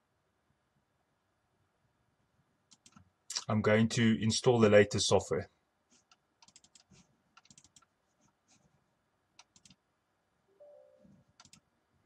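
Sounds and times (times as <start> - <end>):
computer clicks: 2.7 - 3.5, 6.1 - 7.9, 9.4 - 9.8, 11.4 - 11.7.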